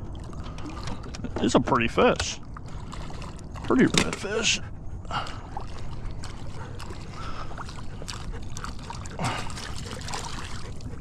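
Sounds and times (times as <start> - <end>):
steady water noise: 0.0 - 11.0
fish splashing at water surface: 5.1 - 10.8.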